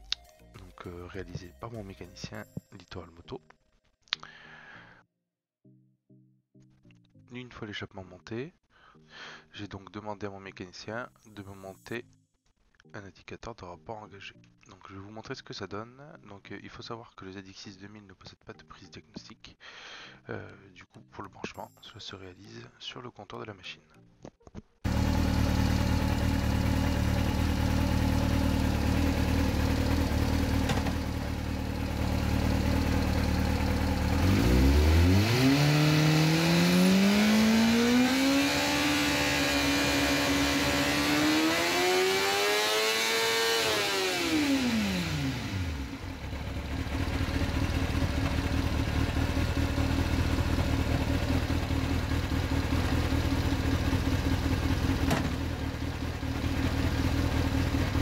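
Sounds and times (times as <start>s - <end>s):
motorcycle engine revving: 24.9s - 58.0s.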